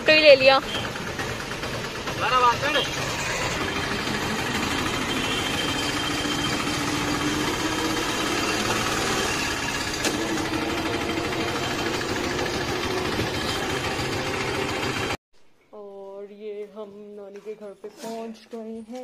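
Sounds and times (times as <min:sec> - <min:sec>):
auto-rickshaw engine humming: 0:00.0 - 0:15.2.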